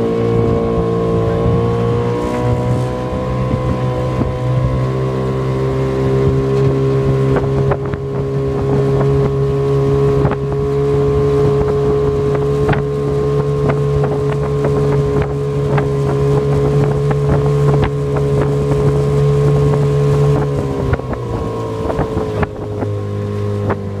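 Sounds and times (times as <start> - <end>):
outboard motor running: 0.0 - 24.0
wind on microphone: 0.0 - 24.0.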